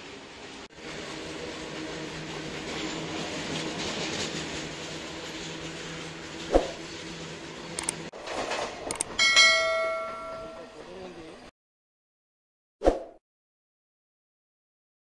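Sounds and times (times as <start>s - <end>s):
train wheels rumbling on rails: 0.0s - 11.2s
loud bell-like chime: 9.2s - 10.8s.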